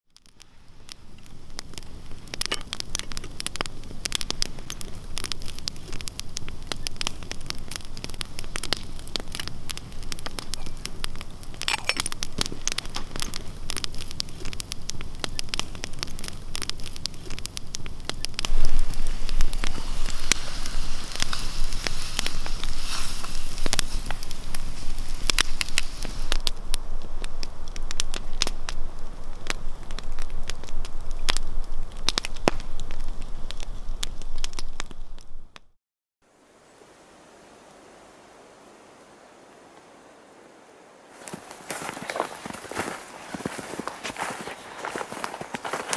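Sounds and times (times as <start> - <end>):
campfire crackling and popping: 0.1 - 35.7, 41.1 - 45.9.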